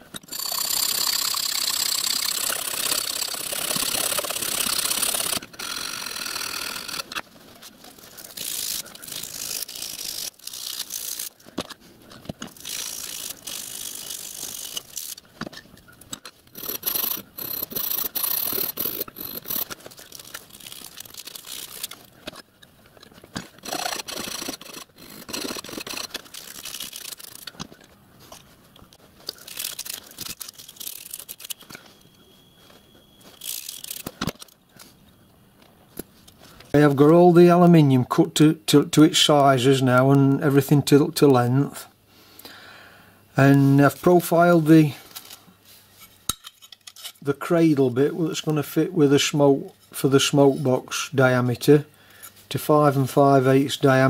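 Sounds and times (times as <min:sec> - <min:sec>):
file rasping on metal: 0:23.6 - 0:26.1.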